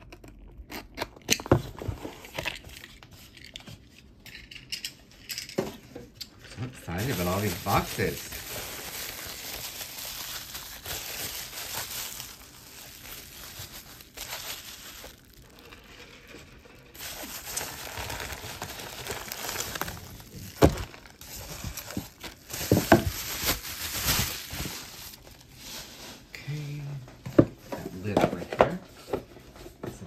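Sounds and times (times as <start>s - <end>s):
packing material crinkling: 6.4s - 26.3s.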